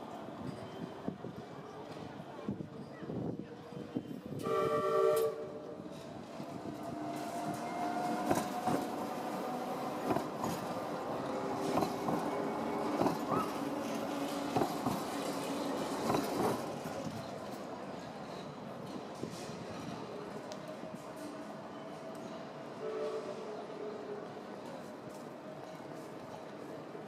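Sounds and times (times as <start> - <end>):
tram horn blast: 4.4 - 5.8, 22.8 - 23.6
wheels clacking over rail joints: 7.1 - 20.0.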